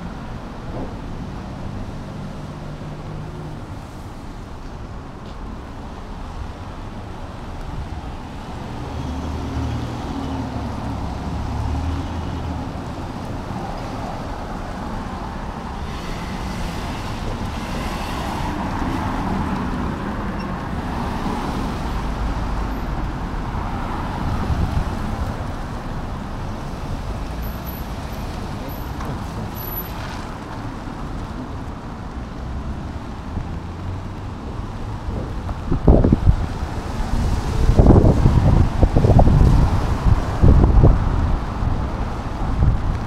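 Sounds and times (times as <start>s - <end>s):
tyre hiss on wet road: 15.7s - 19.5s.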